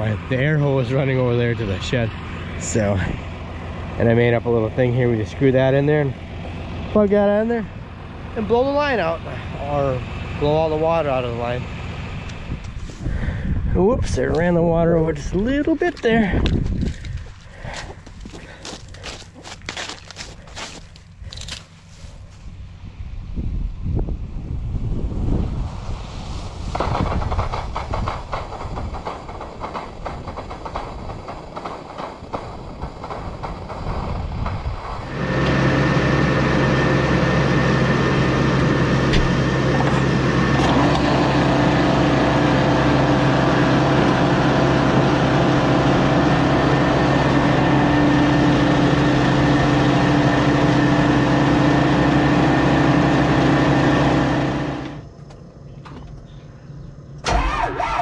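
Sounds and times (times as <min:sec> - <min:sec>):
steady machine hum: 0:22.5 - 0:57.4.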